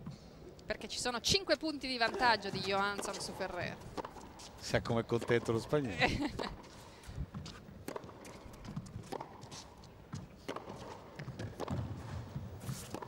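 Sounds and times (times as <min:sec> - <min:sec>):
racquet hitting tennis ball: 0:02.0 - 0:05.8, 0:07.4 - 0:13.0.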